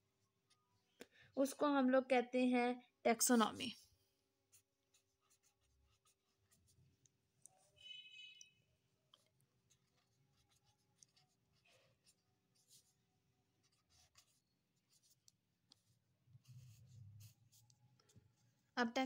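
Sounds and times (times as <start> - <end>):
pen scratching on paper: 4.4 - 8.4, 9.1 - 18.5.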